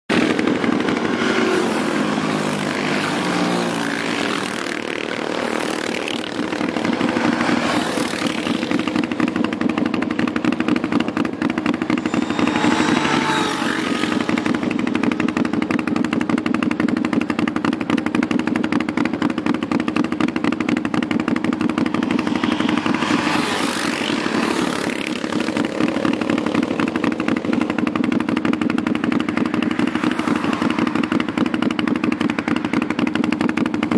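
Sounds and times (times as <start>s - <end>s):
pulsing engine drone: 0.1s - 33.9s
quad engines riding past: 0.1s - 33.9s.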